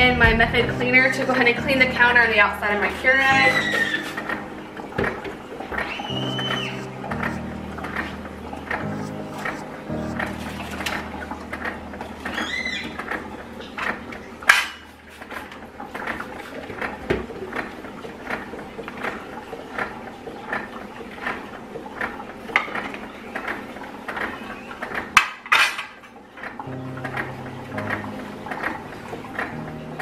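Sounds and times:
plastic and bottles clattering on counter: 25.0 - 26.6.

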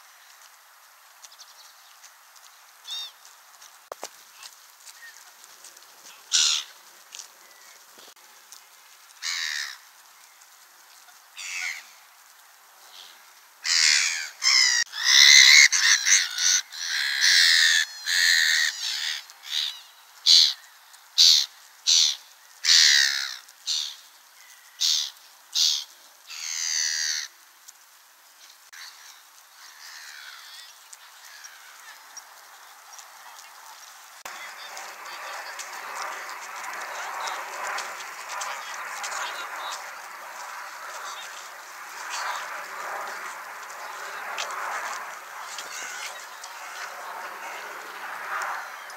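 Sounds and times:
gulls calling: 6.0 - 6.8, 28.7 - 48.9.

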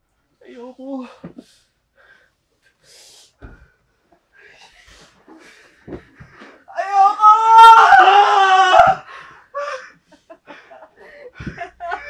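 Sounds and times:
person screaming: 6.7 - 9.2.

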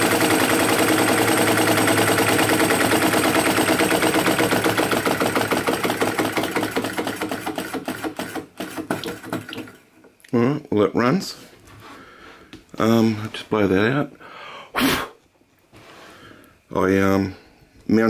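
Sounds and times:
small engine clattering: 0.0 - 9.7.

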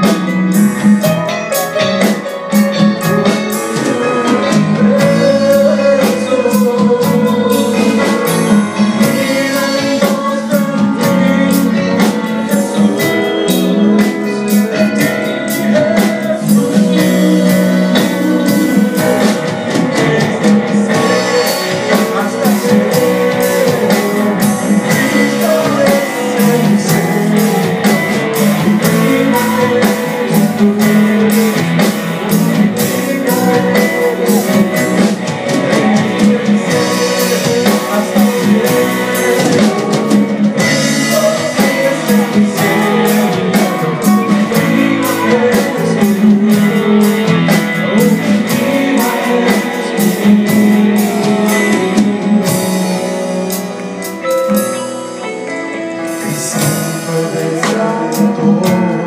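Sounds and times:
drums: 0.0 - 59.0
guitar: 0.0 - 59.0
keyboard: 0.0 - 59.0
person singing: 0.0 - 59.0.

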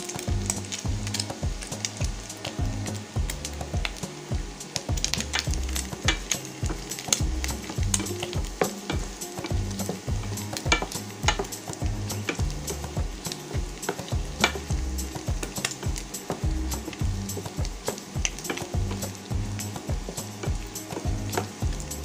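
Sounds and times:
chicken sizzling in a frying pan: 0.0 - 22.0
spatula scraping and knocking pan: 4.8 - 19.2.

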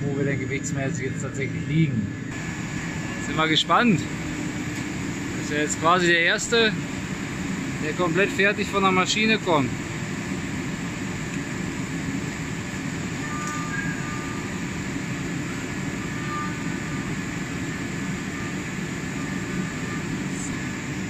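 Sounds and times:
machinery humming: 0.0 - 21.0.

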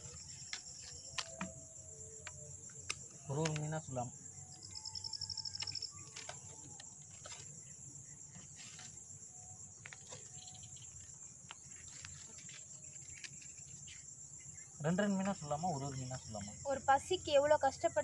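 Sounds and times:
insects chirring: 0.0 - 18.0
pulsed insect trill: 0.0 - 18.0
faint clicks and rustles: 5.4 - 14.1.

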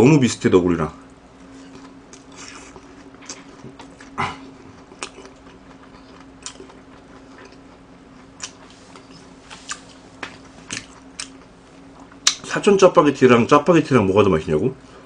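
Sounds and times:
faint steady hum: 0.0 - 15.0
person chewing noodles: 1.6 - 12.5.

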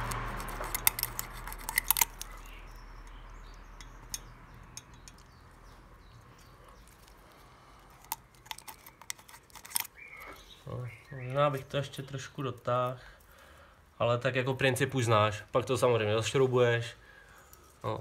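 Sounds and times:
small metallic tool clicks: 0.0 - 5.4.

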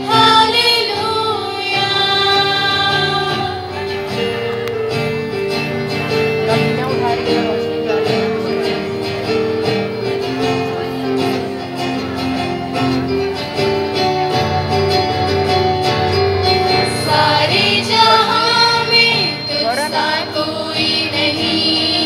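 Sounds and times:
women's choir singing: 0.0 - 4.5, 16.4 - 22.0
guitar: 0.0 - 22.0.

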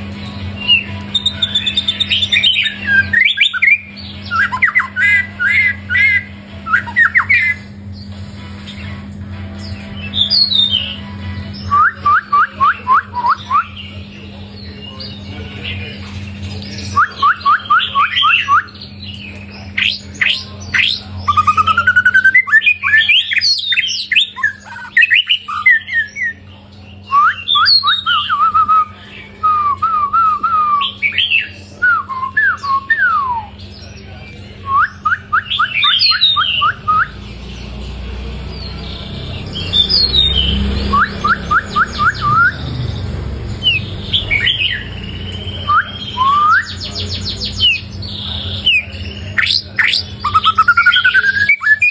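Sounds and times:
bird singing: 0.0 - 51.9
steady low hum: 0.0 - 51.9.

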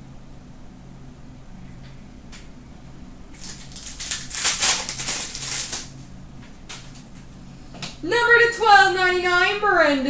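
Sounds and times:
faint electrical hum: 0.0 - 10.0
foil wrapper crinkling and tearing: 3.4 - 6.0.

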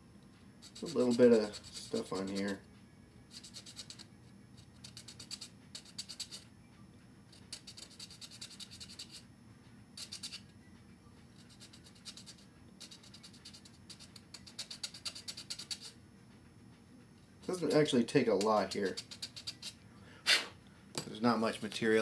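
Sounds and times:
file rasping on plastic: 0.7 - 2.6, 3.4 - 4.0, 4.8 - 6.4, 7.4 - 9.2, 11.4 - 15.9, 18.4 - 19.8.

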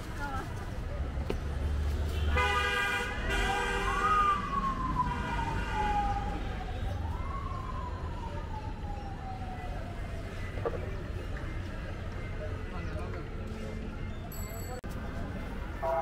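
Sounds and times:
low traffic rumble: 0.0 - 16.0
multi-tone horn blaring: 2.2 - 4.3, 5.0 - 6.2, 15.8 - 16.0
siren wailing: 3.7 - 10.4.

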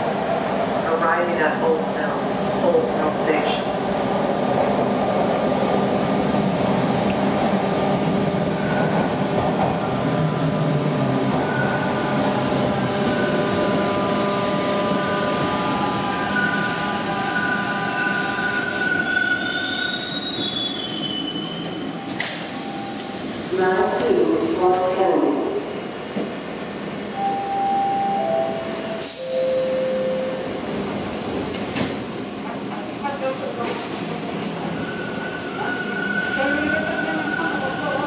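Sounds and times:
train wheels rumbling on rail: 1.8 - 27.1, 30.4 - 38.0
train brakes whining: 18.8 - 24.8, 28.9 - 31.9.

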